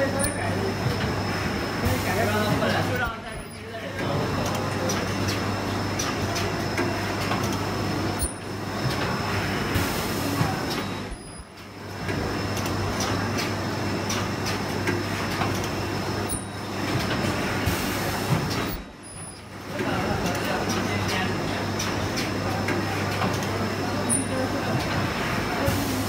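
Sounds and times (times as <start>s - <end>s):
film-cutting machine humming: 0.0s - 26.0s
machine clicks and knocks: 11.5s - 17.3s, 18.2s - 25.1s.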